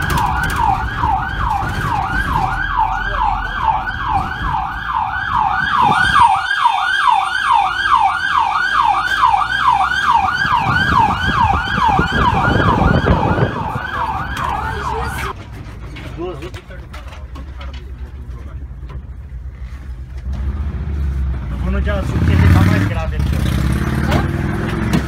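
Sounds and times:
yelping emergency siren: 0:00.0 - 0:15.4
van engine and road rumble: 0:00.0 - 0:25.0.

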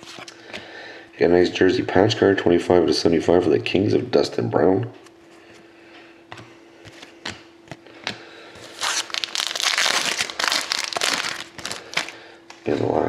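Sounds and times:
foil wrapper crinkling and tearing: 0:08.6 - 0:12.2.

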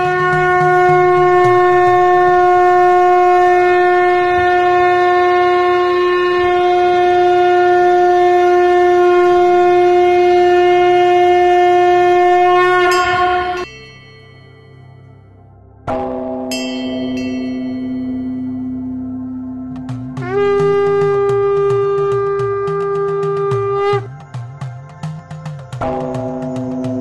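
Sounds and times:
conch shell trumpet: 0:00.0 - 0:13.9, 0:15.9 - 0:24.2
temple bell ringing: 0:12.8 - 0:19.7.

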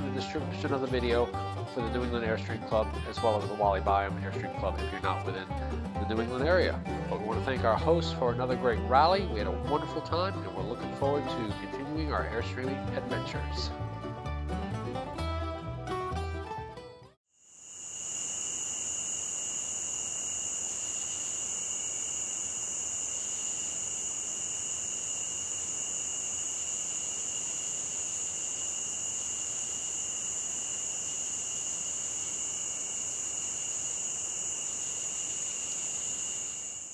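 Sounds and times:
crickets trilling: 0:17.4 - 0:36.9.

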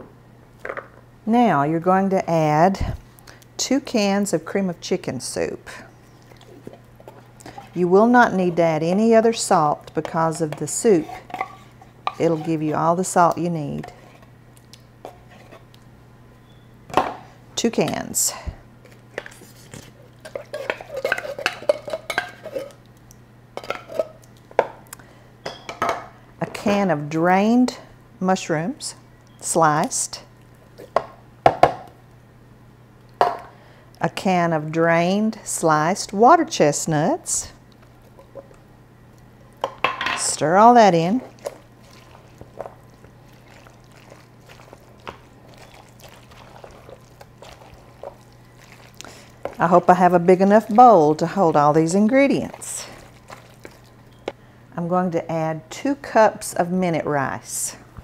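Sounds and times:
spoon stirring thick mix: 0:06.0 - 0:15.8, 0:18.8 - 0:22.9, 0:39.5 - 0:54.4.

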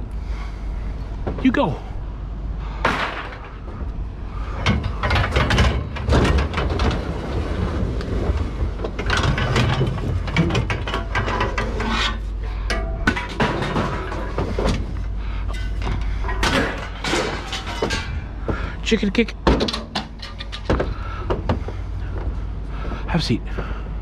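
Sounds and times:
steady low hum: 0:00.0 - 0:24.0
scrap metal clanking: 0:04.4 - 0:18.8, 0:19.5 - 0:22.1.

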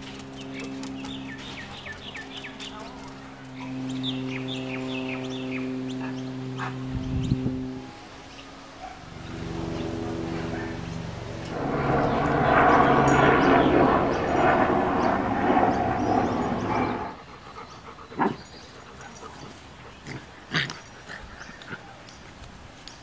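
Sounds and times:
puppies growling in play: 0:19.3 - 0:22.0.

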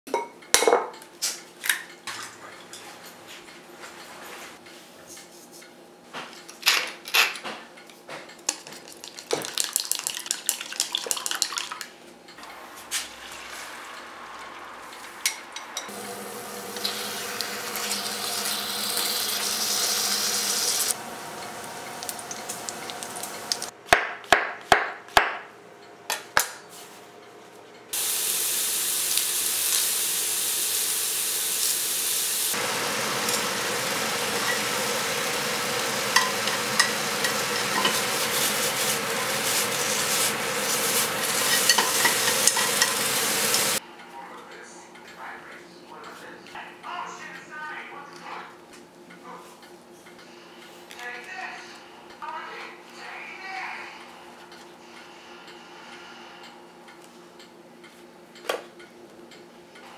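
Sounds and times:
egg frying in a pan: 0:08.8 - 0:11.8, 0:12.5 - 0:23.7, 0:28.0 - 0:43.8
utensils tapping ceramic bowl: 0:36.1 - 0:38.2, 0:41.2 - 0:43.1.

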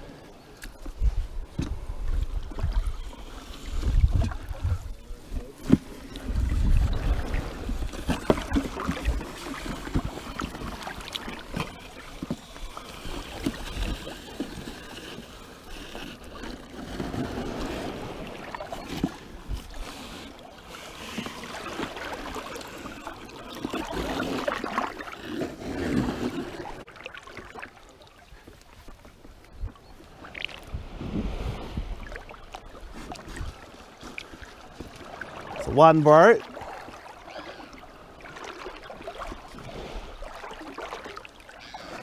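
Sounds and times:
sea water sloshing: 0:00.0 - 0:42.0
wind buffeting microphone: 0:03.7 - 0:10.2, 0:30.6 - 0:33.7.

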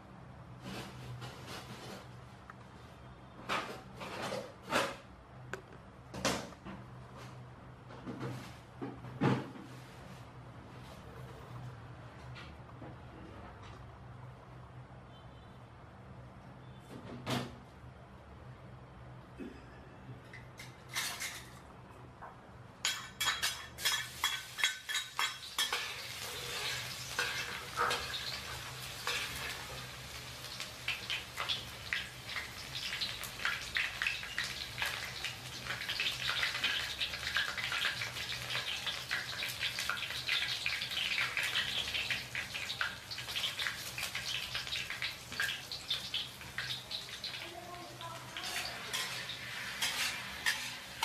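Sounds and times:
metal utensil scraping a pan: 0:22.9 - 0:29.9, 0:48.4 - 0:51.0
food sizzling in oil: 0:23.2 - 0:51.0.

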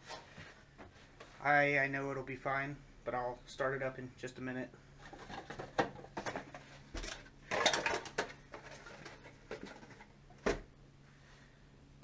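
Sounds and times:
parts and packaging clattering: 0:05.0 - 0:10.7.

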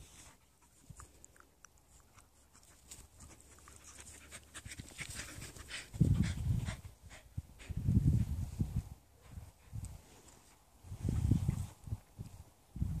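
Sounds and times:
dogs panting: 0:00.0 - 0:07.8.

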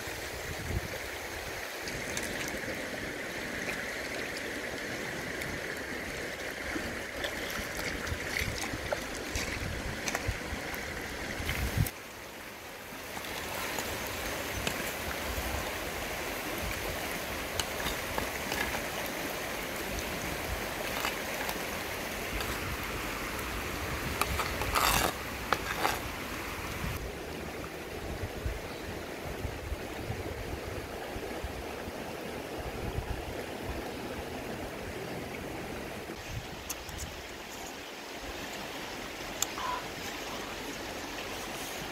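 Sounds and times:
stream rushing: 0:00.0 - 0:41.9
metal spoon scraping clay pot: 0:24.2 - 0:26.1.

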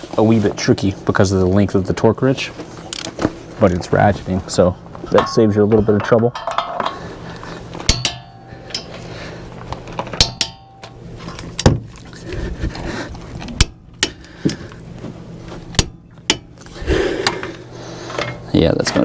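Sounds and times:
metallic clinks and knocks: 0:05.1 - 0:07.2, 0:07.8 - 0:09.0, 0:10.0 - 0:11.0.

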